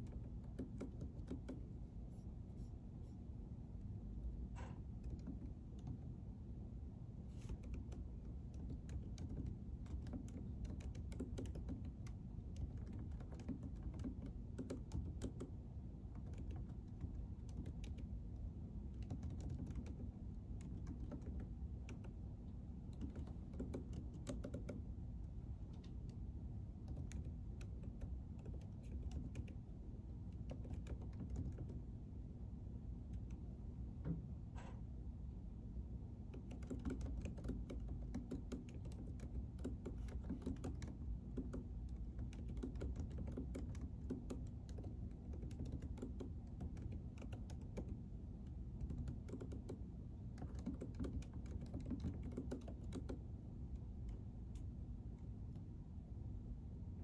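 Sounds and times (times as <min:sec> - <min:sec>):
low room hum: 0:00.0 - 0:57.0
keyboard keystroke clicks: 0:07.5 - 0:15.5, 0:18.9 - 0:22.2, 0:22.8 - 0:24.8, 0:36.3 - 0:48.0, 0:48.7 - 0:53.2.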